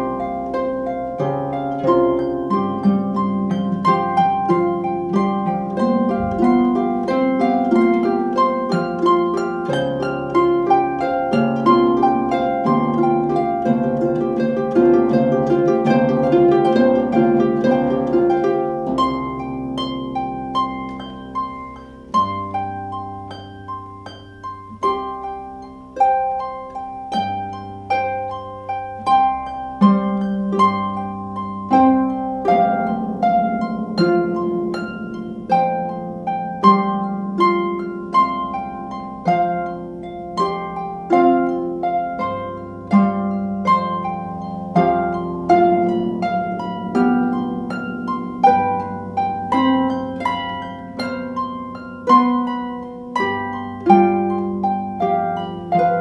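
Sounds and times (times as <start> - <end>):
harps playing plucked notes: 0.0 - 56.0.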